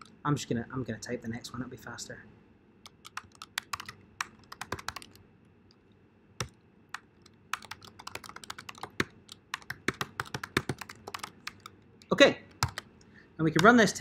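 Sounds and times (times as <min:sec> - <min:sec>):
typing on a keyboard: 0:02.9 - 0:05.2, 0:06.4 - 0:12.9, 0:13.6 - 0:13.8.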